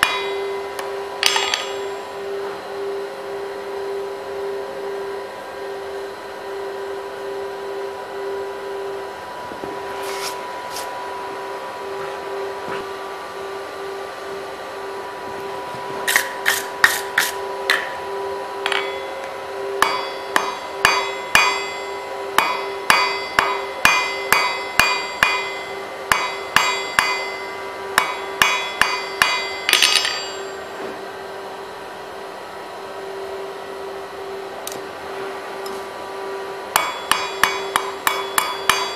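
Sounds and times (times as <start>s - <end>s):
hammer ringing on anvil: 0.0s - 2.1s, 17.7s - 18.0s, 18.6s - 30.8s, 36.7s - 38.9s
steady hum: 0.0s - 38.9s.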